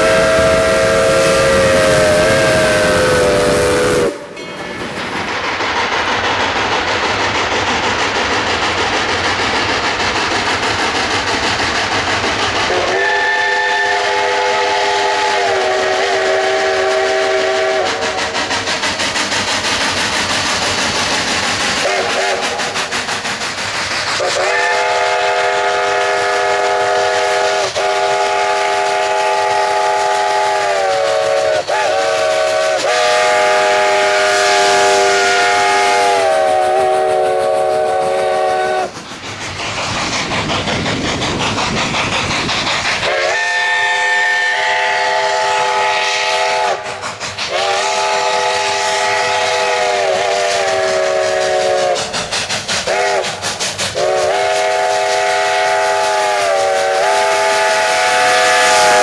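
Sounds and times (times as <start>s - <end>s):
steam locomotive whistle blasts: 0.0s - 4.5s, 12.7s - 18.6s, 21.8s - 22.8s, 24.2s - 39.0s, 43.0s - 52.1s, 52.8s - 59.0s
loud steam hiss: 0.0s - 59.0s.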